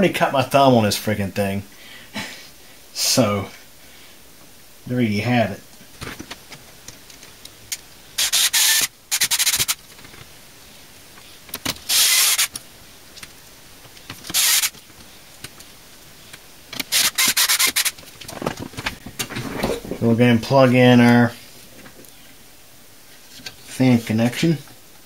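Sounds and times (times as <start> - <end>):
screws rasping into plastic: 8.2 - 9.8, 11.7 - 12.6, 14.2 - 14.8, 16.8 - 18.0.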